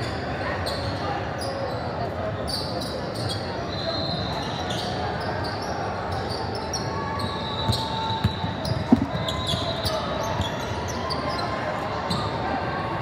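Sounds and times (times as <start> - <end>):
sneaker squeaks: 2.5 - 12.3
basketball bouncing on wooden floor: 8.7 - 9.2.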